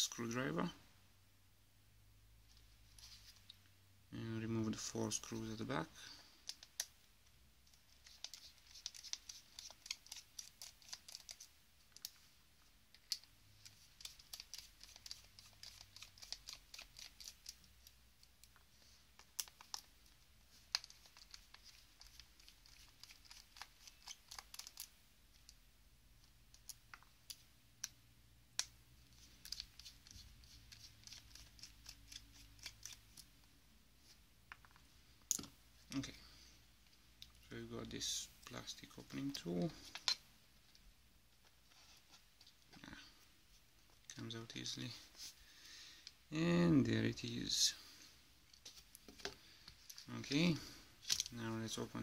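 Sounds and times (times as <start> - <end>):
screwdriver clicking and scratching: 8.0 - 12.1, 13.0 - 17.6, 20.7 - 25.5.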